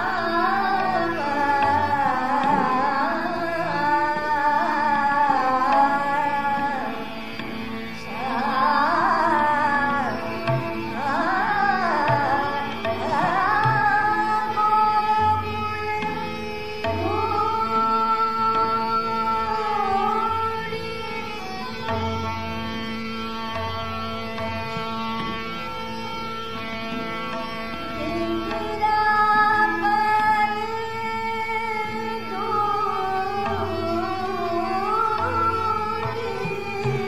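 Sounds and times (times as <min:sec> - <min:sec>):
woman singing classical vocals: 0:00.0 - 0:07.1, 0:08.0 - 0:21.4, 0:28.0 - 0:37.0
tabla playing: 0:00.0 - 0:37.0.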